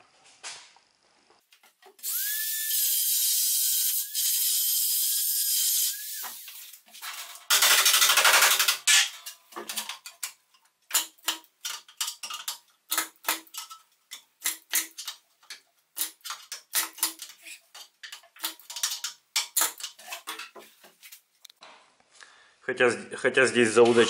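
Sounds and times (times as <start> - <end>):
spot welding gun hissing: 2.0 - 6.7.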